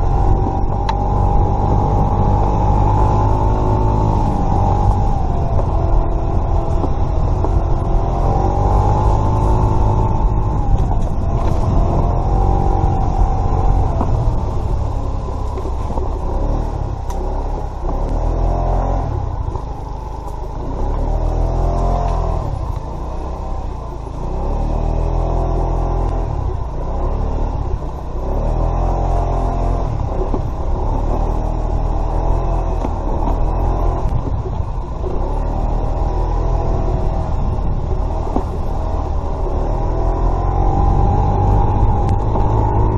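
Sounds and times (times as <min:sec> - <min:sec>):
scooter engine revving: 0:00.0 - 0:19.6
heavy low rumble: 0:00.0 - 0:42.9.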